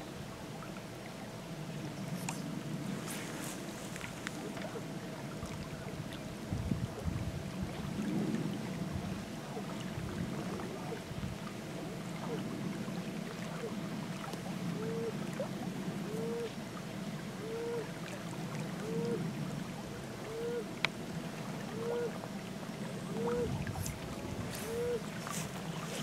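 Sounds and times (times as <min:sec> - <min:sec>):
river water rushing: 0:23.1 - 0:26.0.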